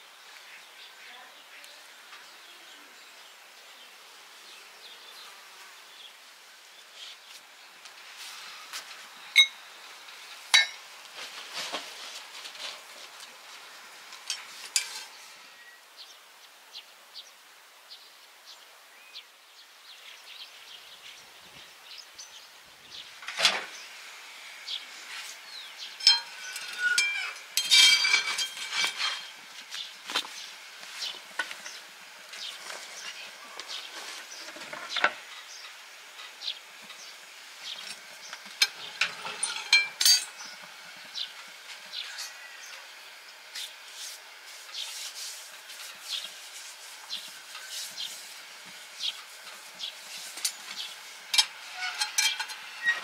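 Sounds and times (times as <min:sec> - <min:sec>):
ringing metal clatter: 0:26.0 - 0:29.3, 0:38.6 - 0:40.4, 0:51.4 - 0:53.0
metal oven clicks and clinks: 0:38.6 - 0:40.4, 0:51.4 - 0:53.0.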